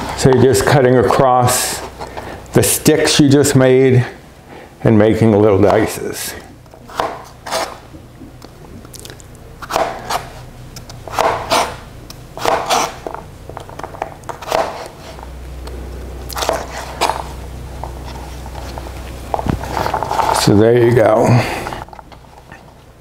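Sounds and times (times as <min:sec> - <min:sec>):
knife cutting raw potato: 0:06.8 - 0:07.8, 0:09.6 - 0:11.8, 0:12.4 - 0:13.1, 0:14.3 - 0:15.2, 0:16.3 - 0:17.3.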